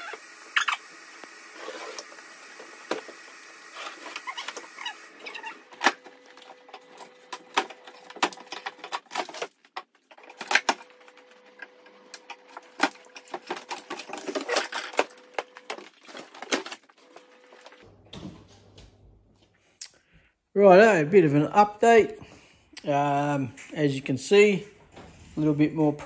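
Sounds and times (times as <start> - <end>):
plasterboard cracking and snapping: 3.9 - 11.2, 12.1 - 17.0.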